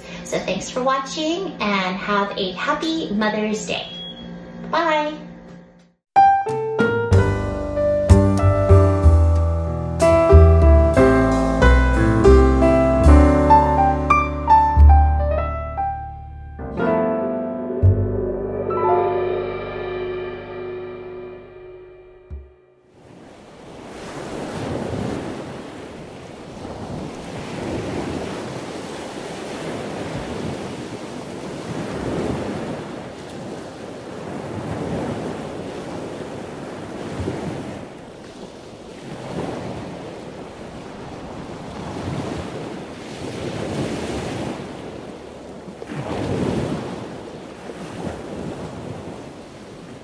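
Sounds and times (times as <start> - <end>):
ocean waves washing in: 22.9 - 50.0.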